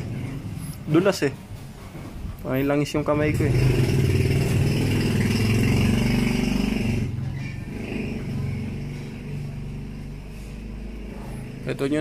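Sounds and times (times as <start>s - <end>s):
vehicle engine running: 3.2s - 12.0s.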